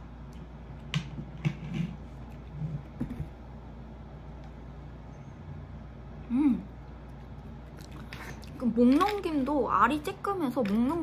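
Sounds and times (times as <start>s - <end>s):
steady low hum: 0.0s - 11.0s
soft gulping: 6.5s - 8.7s.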